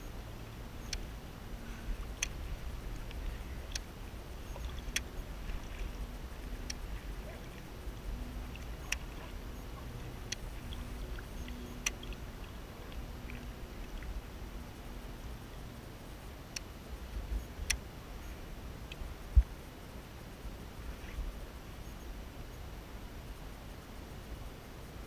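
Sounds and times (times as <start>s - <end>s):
water and wind rumble: 0.0s - 25.0s.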